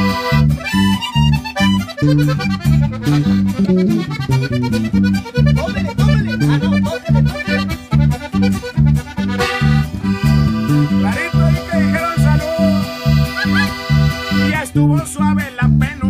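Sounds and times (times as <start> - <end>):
button accordion melody: 0.0 - 15.2
electric bass: 0.0 - 16.0
twelve-string acoustic guitar: 0.0 - 16.0.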